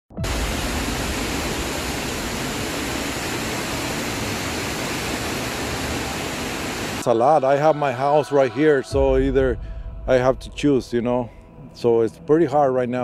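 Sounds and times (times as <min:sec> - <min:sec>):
flooded river rushing: 0:00.2 - 0:07.1.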